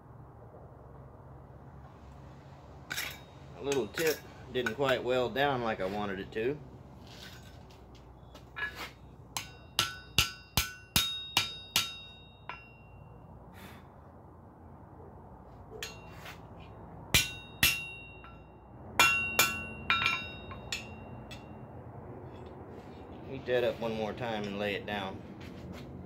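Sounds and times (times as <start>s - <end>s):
hammer ringing on steel: 3.0s - 5.0s, 9.4s - 13.3s, 15.8s - 16.3s, 17.1s - 21.7s.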